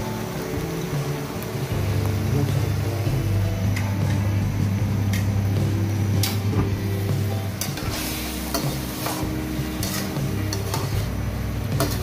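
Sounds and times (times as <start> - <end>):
livers sizzling in a frying pan: 0.0 - 12.0
wooden spatula scraping a pan: 7.6 - 11.2.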